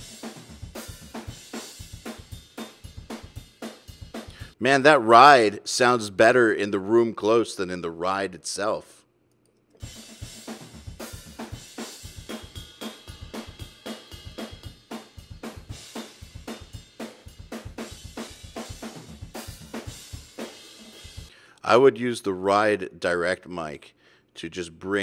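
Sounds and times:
snare drum: 0.0 - 4.4, 9.9 - 21.3.

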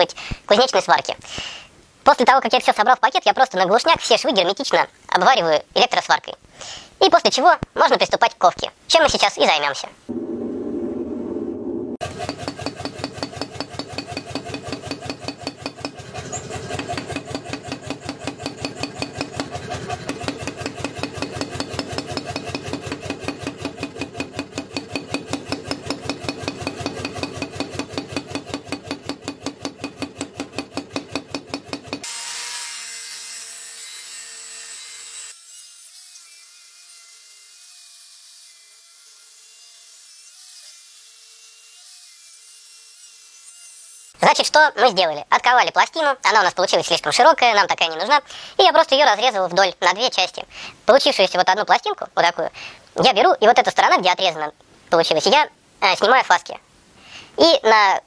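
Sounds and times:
power hammer pounding steel: 12.0 - 32.1.

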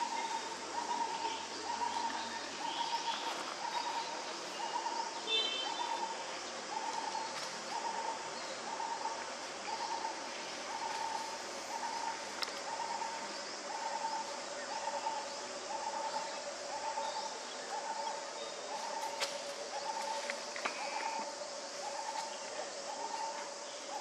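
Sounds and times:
bird hooting: 0.0 - 19.1.

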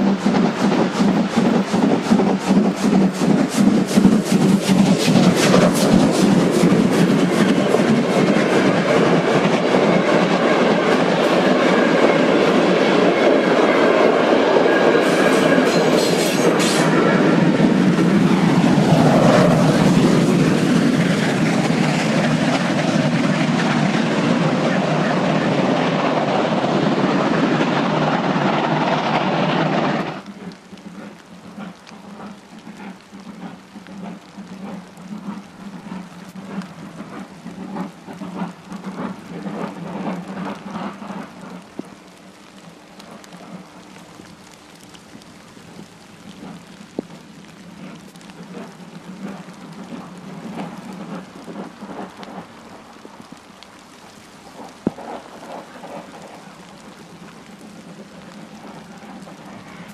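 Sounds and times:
steam locomotive exhaust beats: 0.0 - 59.9.

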